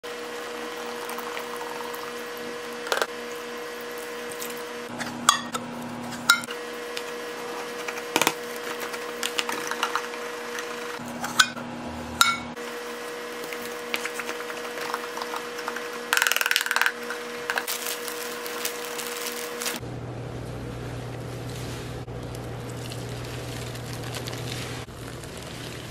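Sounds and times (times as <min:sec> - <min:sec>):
powder crackling: 0:13.3 - 0:19.8, 0:21.1 - 0:25.9.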